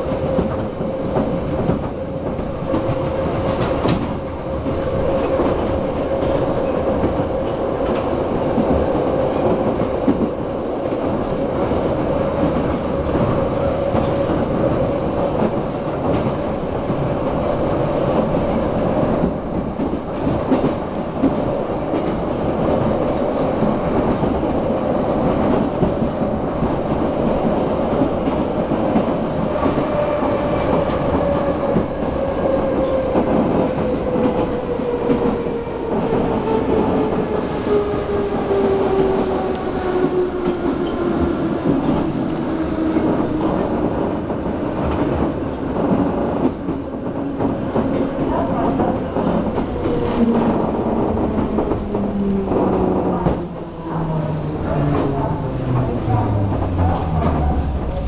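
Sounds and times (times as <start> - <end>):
train rumble: 0.0 - 58.0
train wheels clattering on rails: 0.0 - 58.0.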